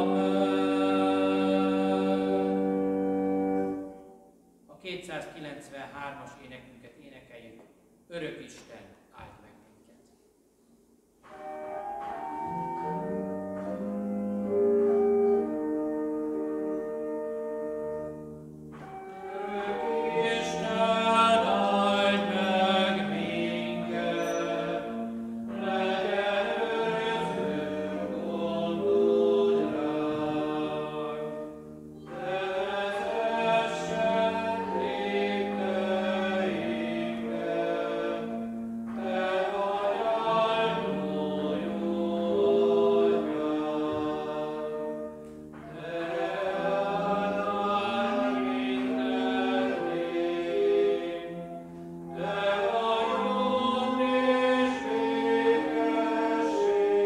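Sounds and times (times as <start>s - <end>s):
congregation singing a hymn: 0.0s - 4.2s, 11.2s - 18.1s, 18.7s - 57.0s.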